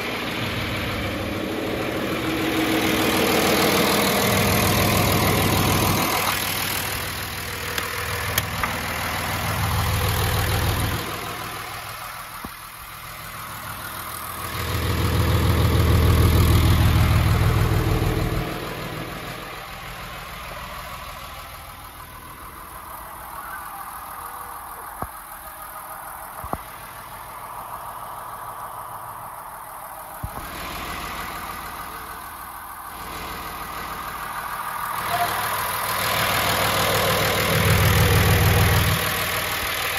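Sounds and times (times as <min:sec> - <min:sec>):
tractor diesel engine idling: 0:00.0 - 0:39.9
sharp clicks: 0:07.7 - 0:08.9.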